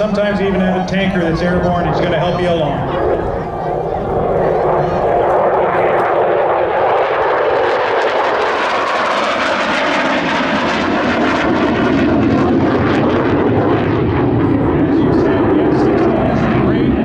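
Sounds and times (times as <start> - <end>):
fighter jet flying past: 0.0 - 17.0.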